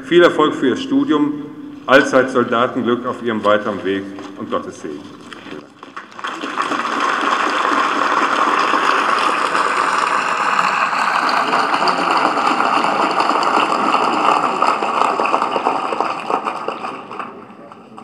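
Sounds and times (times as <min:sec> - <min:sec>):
large crowd applauding: 0:05.5 - 0:18.0.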